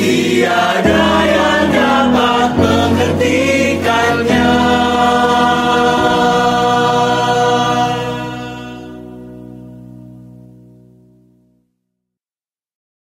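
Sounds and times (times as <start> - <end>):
mixed choir singing chords: 0.0 - 10.0.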